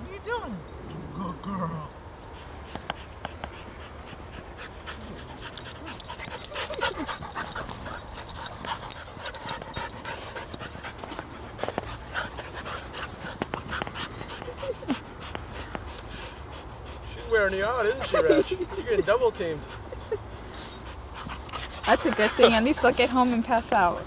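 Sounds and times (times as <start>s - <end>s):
paws scuffling and knocks: 2.3s - 15.9s, 17.1s - 24.0s
dogs whining: 4.9s - 15.7s, 17.1s - 24.0s.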